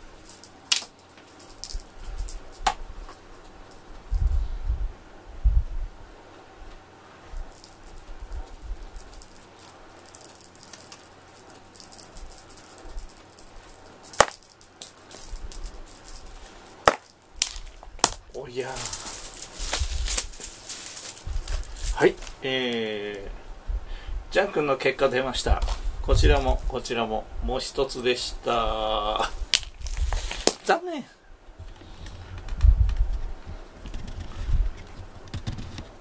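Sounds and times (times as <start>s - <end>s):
cat teaser wand rattling: 0.0s - 3.4s, 7.4s - 17.6s.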